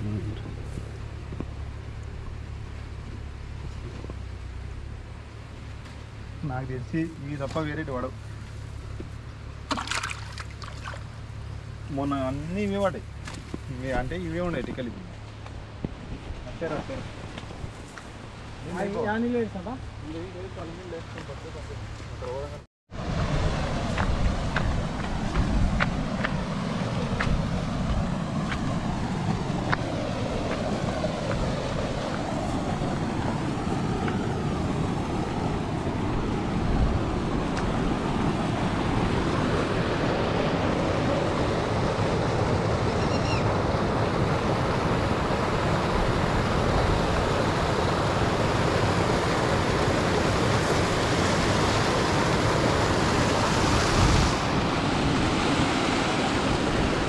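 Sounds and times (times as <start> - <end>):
water rushing over spillway: 9.6 - 13.0, 18.5 - 57.0
wind buffeting microphone: 23.0 - 57.0.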